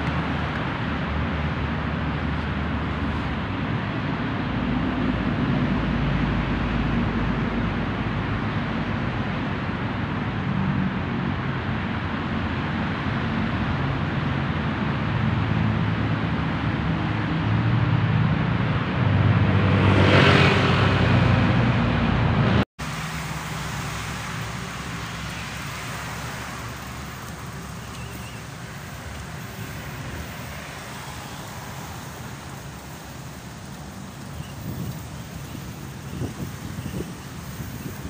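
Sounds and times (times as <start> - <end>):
steady traffic hum: 0.0 - 38.0
vehicle engine passing: 13.6 - 38.0.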